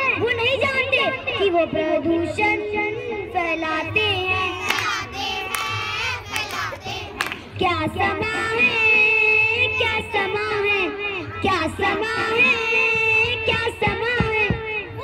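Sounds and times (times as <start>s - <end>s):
girl singing: 3.4s - 14.6s.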